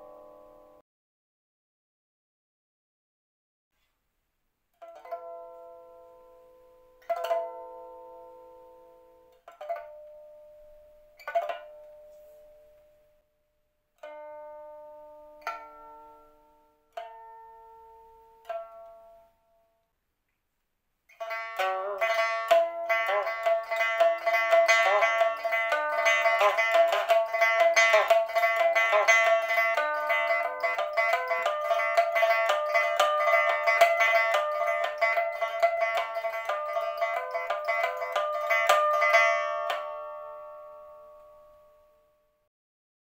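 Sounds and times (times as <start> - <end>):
pipa harmonic notes: 0.0 - 0.8, 21.1 - 42.2
quick run of plucked notes: 21.2 - 40.6.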